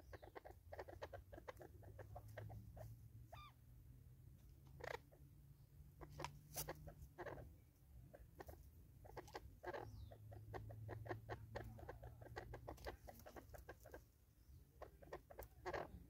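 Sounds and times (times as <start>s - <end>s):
birds clucking: 0.0s - 3.7s, 4.4s - 16.0s
birds pecking on wood: 10.5s - 14.0s.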